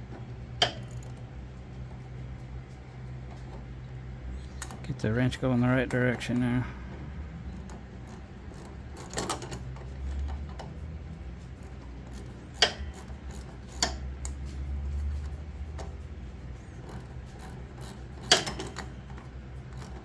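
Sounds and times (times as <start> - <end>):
low steady hum: 0.0 - 20.0
wrench metallic clicks and knocks: 0.1 - 1.2, 11.6 - 14.4, 16.8 - 20.0.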